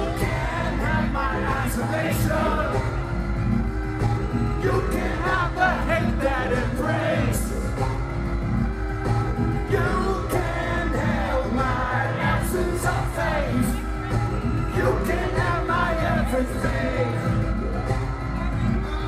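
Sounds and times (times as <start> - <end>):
man singing into microphone: 0.0 - 2.8, 4.6 - 7.5, 9.7 - 17.4
bass and drum beat: 0.0 - 19.0.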